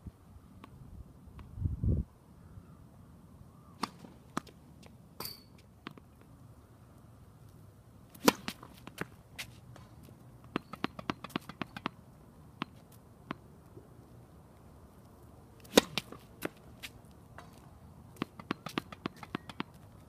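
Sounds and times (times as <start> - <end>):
racquet hitting tennis ball: 8.2 - 9.5, 10.5 - 12.0, 15.6 - 16.7, 18.2 - 19.7.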